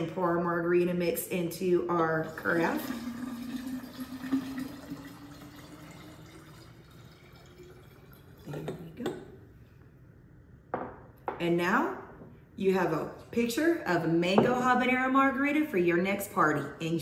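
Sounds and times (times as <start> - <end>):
liquid pouring into glass carafe: 2.0 - 8.9.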